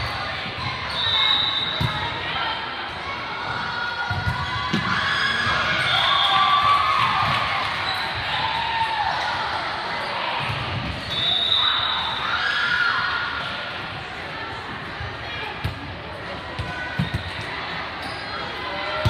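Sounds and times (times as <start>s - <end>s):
sneakers squeaking on floor: 18.0s - 18.5s.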